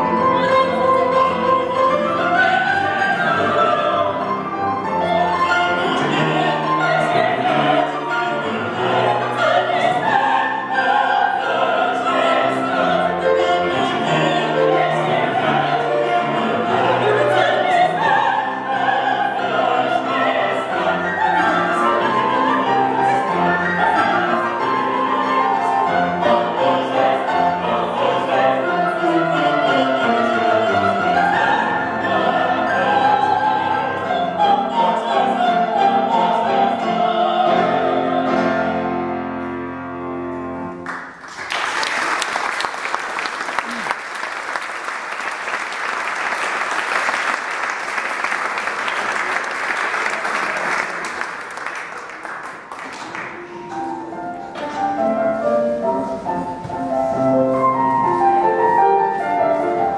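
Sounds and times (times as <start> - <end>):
operatic singing: 0.0 - 39.3
grand piano: 0.0 - 59.9.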